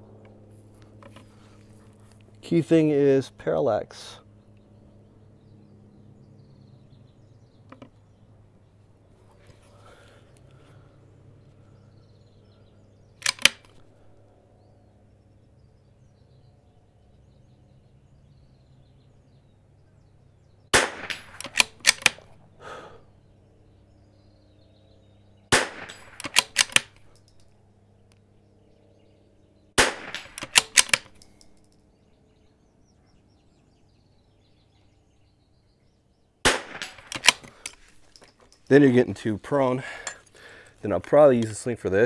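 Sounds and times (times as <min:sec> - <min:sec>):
rifle bolt clicking: 0:13.2 - 0:13.8, 0:21.0 - 0:22.3, 0:25.6 - 0:27.4, 0:30.0 - 0:31.6, 0:36.5 - 0:38.3
rifle shots: 0:20.7 - 0:22.4, 0:25.5 - 0:27.0, 0:29.8 - 0:31.3, 0:36.4 - 0:37.7.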